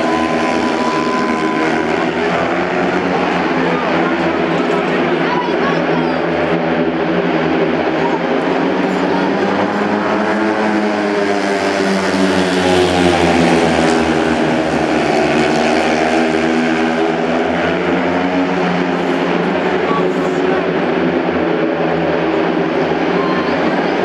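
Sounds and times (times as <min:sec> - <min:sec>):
motorcycle engines racing at high revs: 0:00.0 - 0:24.0.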